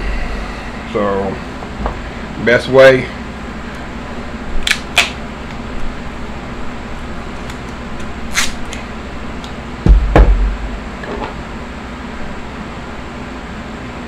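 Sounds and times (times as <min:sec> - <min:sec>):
tape ripped off roll: 0:08.3 - 0:08.8
heavy dull knocks: 0:09.8 - 0:11.4.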